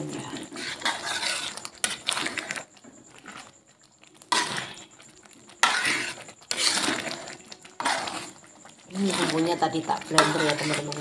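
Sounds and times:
metal spoon scraping a wok: 0:00.0 - 0:03.5, 0:04.2 - 0:11.0.

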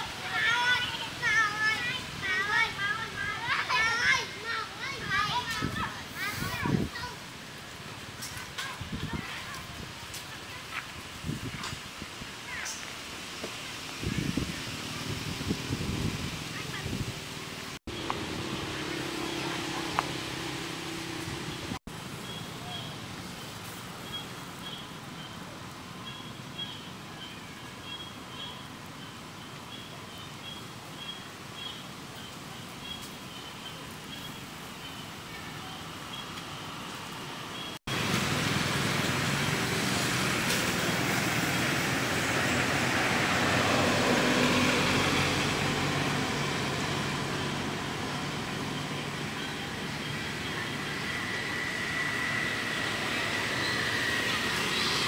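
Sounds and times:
engine hum: 0:12.4 - 0:28.5, 0:33.8 - 0:55.0
vehicle passing: 0:14.1 - 0:21.8, 0:37.9 - 0:55.0.

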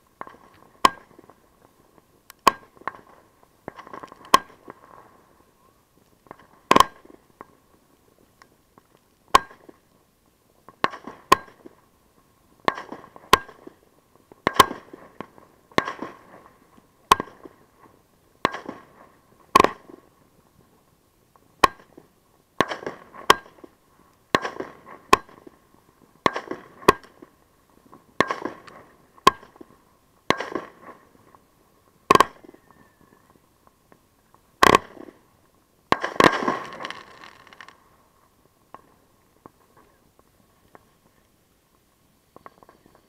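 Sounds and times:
fireworks bangs: 0:35.9 - 0:37.8
fireworks crackling hiss: 0:35.9 - 0:38.6.

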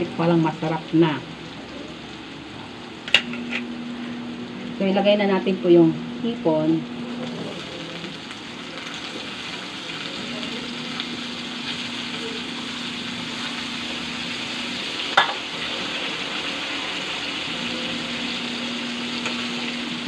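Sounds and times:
shrimp sizzling in butter: 0:06.9 - 0:20.0.

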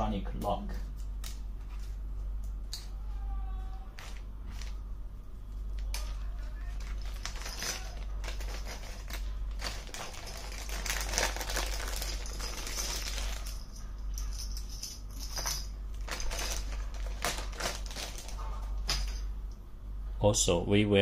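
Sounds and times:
wire connectors clicking and rattling: 0:03.9 - 0:04.8, 0:05.6 - 0:19.6
plastic bag crinkling: 0:05.9 - 0:19.2.

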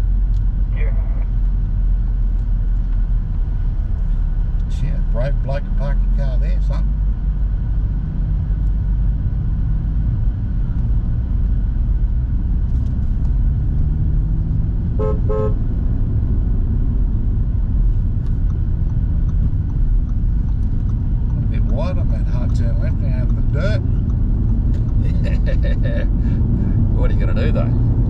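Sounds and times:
car engine and road noise: 0:00.0 - 0:28.0
car horn toots: 0:14.9 - 0:15.6.

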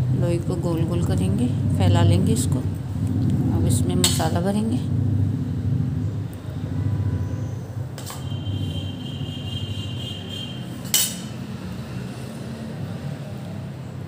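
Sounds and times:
low steady hum: 0:00.0 - 0:10.1
steel spoon clinking on metal: 0:10.8 - 0:11.4.

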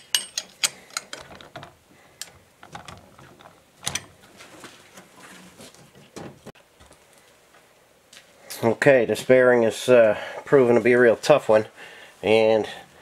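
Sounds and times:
metal clicks and clinks: 0:00.0 - 0:03.0.

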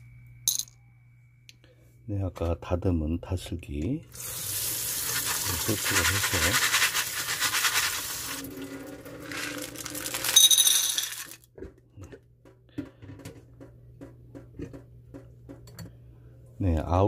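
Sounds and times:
snails clattering into glass bowl: 0:09.3 - 0:11.4.

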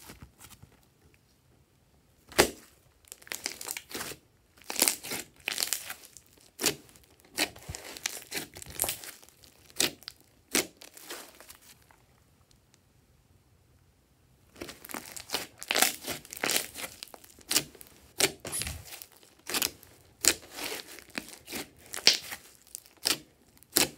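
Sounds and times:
sticky slime crackles and pops: 0:02.3 - 0:11.9, 0:14.6 - 0:23.9.

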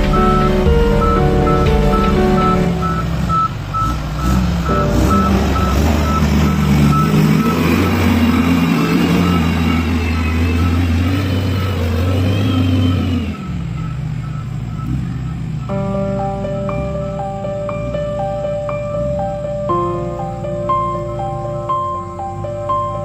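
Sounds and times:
reversing alarm beeps: 0:00.0 - 0:15.8
diesel engine working under load: 0:00.0 - 0:23.0.

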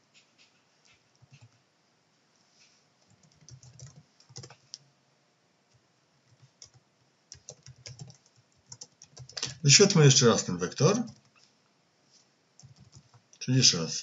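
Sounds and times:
computer keyboard keystrokes: 0:00.2 - 0:01.6, 0:03.0 - 0:04.8, 0:06.3 - 0:09.6, 0:11.0 - 0:11.4, 0:12.6 - 0:13.2.

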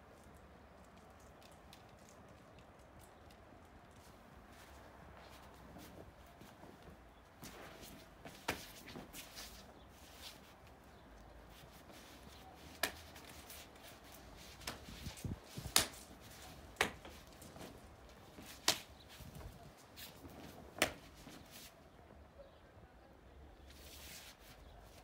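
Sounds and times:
strikes snapping and slapping: 0:12.6 - 0:19.5, 0:20.3 - 0:21.4.

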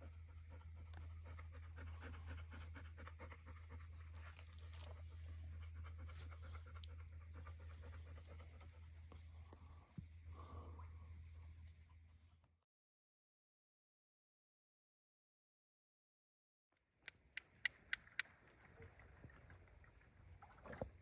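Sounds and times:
dog panting: 0:00.0 - 0:09.1.

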